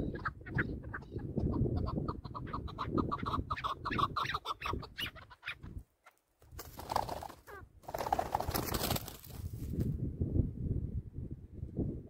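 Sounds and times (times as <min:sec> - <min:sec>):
partridge clucking call: 0:00.0 - 0:05.7.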